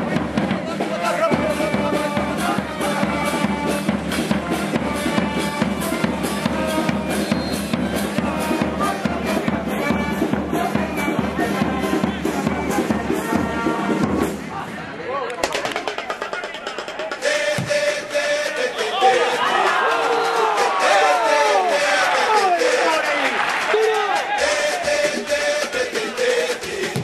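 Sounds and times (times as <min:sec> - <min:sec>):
brass band music: 0:00.0 - 0:14.5
bass drum beating: 0:26.8 - 0:27.0.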